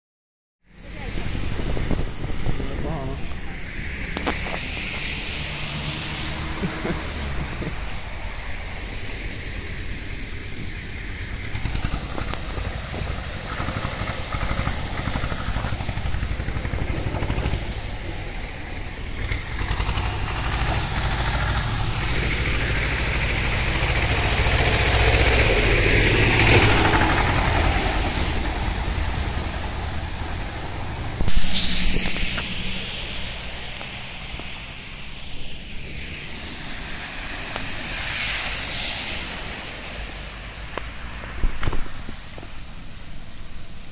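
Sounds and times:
vehicle engine rumble: 0.6 - 43.9
tyres splashing through water: 0.7 - 43.8
sudden loud burst of noise: 30.7 - 39.2.

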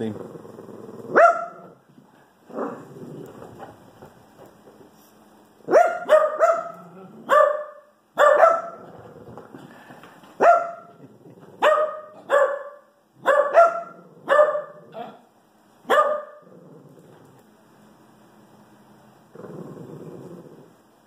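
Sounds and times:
small dog barking: 1.1 - 1.8, 5.7 - 8.8, 10.4 - 11.0, 11.6 - 15.2, 15.8 - 16.5.

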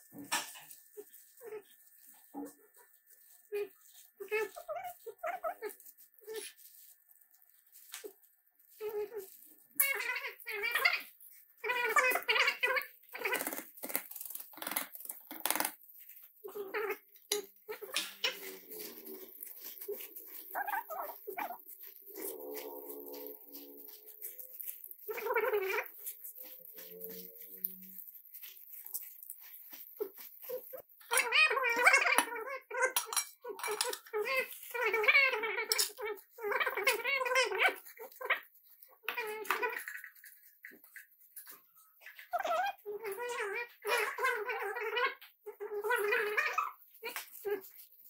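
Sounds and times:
baby monkey crying: 16.4 - 26.0.

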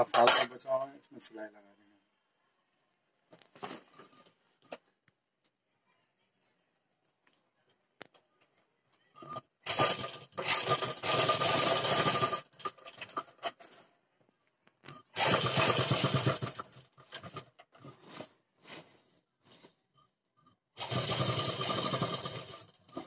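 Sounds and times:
sewing machine stitching: 9.2 - 13.4, 15.2 - 17.9, 20.8 - 23.0.

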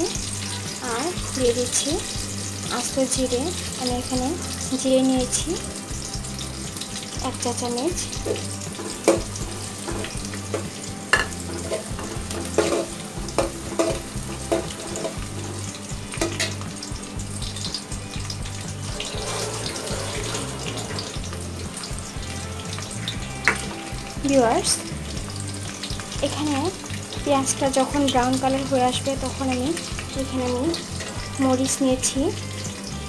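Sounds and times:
onions sizzling in oil: 0.0 - 33.0
ladle clinking and scraping pot: 8.2 - 16.6, 18.9 - 21.8.

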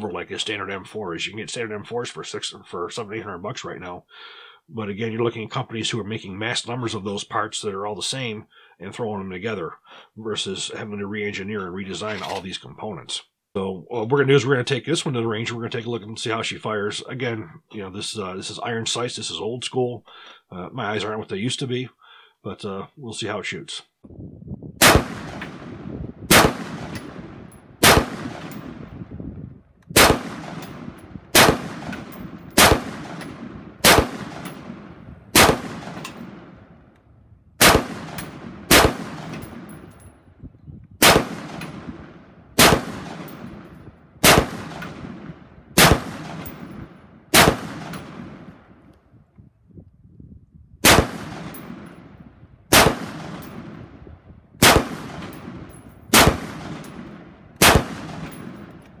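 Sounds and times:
rifle shots with echo: 24.8 - 29.1, 30.0 - 36.8, 37.6 - 40.1, 41.0 - 48.8, 50.8 - 54.0, 54.6 - 58.9.

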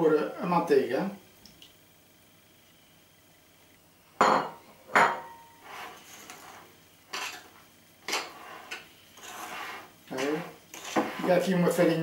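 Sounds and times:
spoon stirring thick batter: 5.6 - 12.0.

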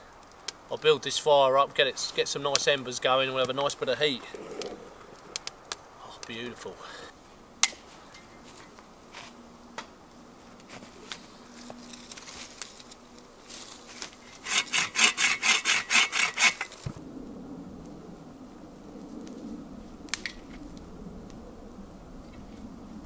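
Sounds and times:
hand saw cutting wood: 14.1 - 16.9.

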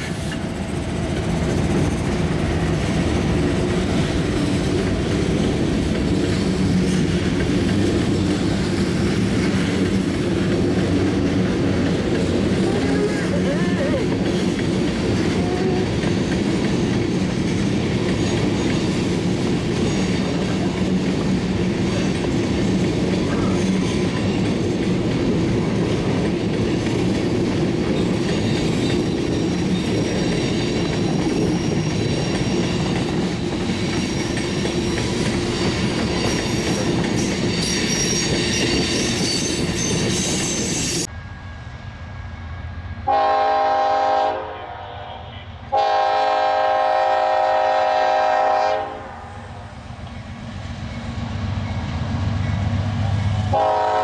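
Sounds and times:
train wheels rumbling on rail: 0.0 - 54.0
high wheel squeal: 28.3 - 41.1
diesel locomotive horn: 43.0 - 49.6, 53.4 - 54.0.

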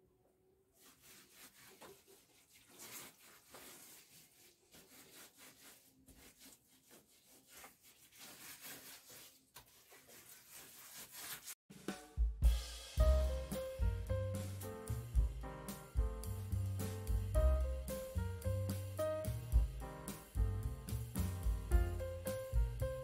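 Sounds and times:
hand rubbing wet clay: 0.8 - 11.6.

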